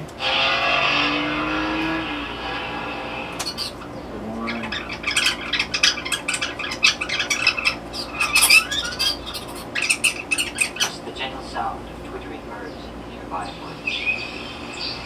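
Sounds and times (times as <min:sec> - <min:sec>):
birds twittering: 0:00.0 - 0:15.0
low held tone: 0:04.0 - 0:04.8.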